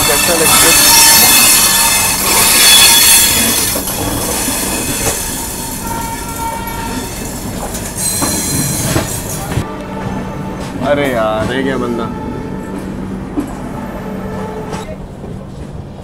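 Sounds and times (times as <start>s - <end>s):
train wheels squealing on rails: 0.0s - 9.6s.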